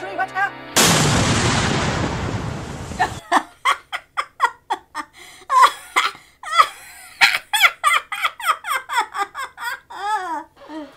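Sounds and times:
person laughing hard: 3.0s - 10.6s.

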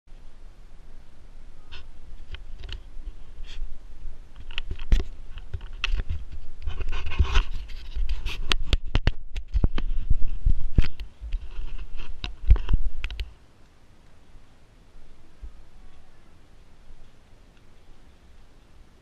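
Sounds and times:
camera knocking and rubbing: 4.4s - 13.3s.

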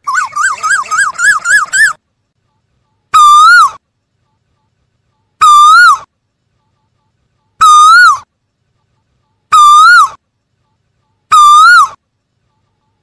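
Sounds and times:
bird calling: 0.0s - 2.0s, 3.1s - 3.8s, 5.4s - 6.1s, 9.5s - 10.2s, 11.3s - 12.0s.

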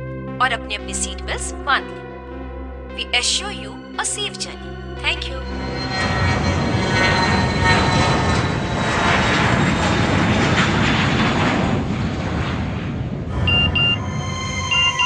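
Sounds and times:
background music: 0.0s - 8.4s, 13.3s - 15.0s
jet engine roar: 5.4s - 15.0s
short high beeps: 13.4s - 15.0s.

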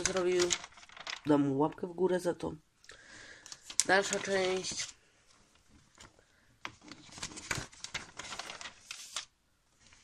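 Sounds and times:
magazine pages rustling: 0.0s - 1.4s, 3.4s - 5.0s, 5.6s - 10.0s.

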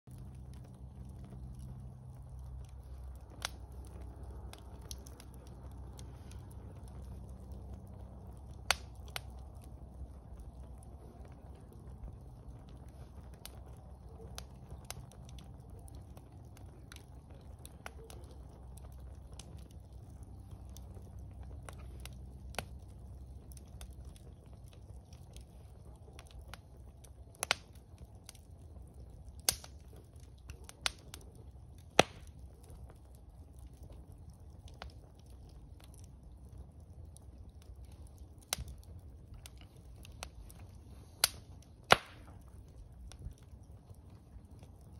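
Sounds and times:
campfire crackling and popping: 0.0s - 44.9s.

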